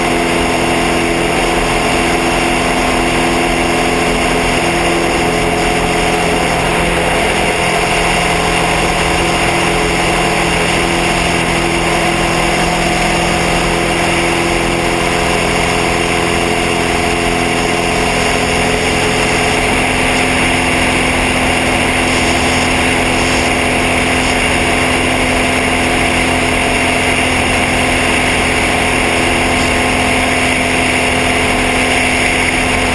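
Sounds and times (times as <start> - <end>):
plane engine and propeller droning: 0.0 - 32.9.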